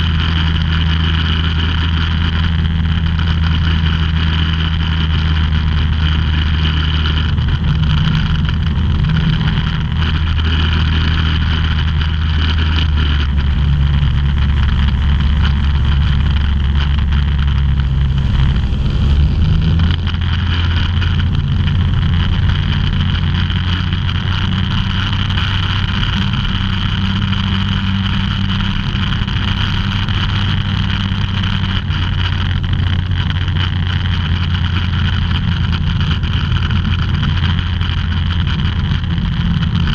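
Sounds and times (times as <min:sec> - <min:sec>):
aircraft engine droning: 0:03.0 - 0:29.5.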